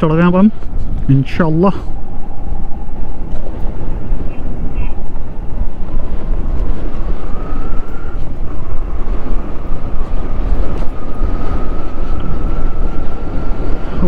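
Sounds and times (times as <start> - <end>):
faint high whine: 0.0 - 14.0
wind buffeting microphone: 0.0 - 14.0.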